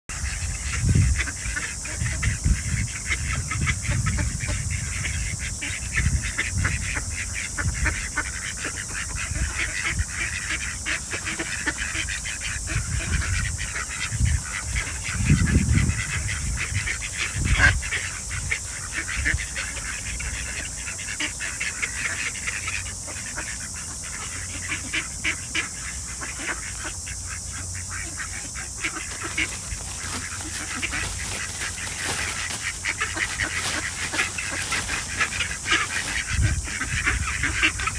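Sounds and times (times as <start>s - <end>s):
ducks quacking: 0.1s - 37.9s
steady high hiss: 16.1s - 37.9s.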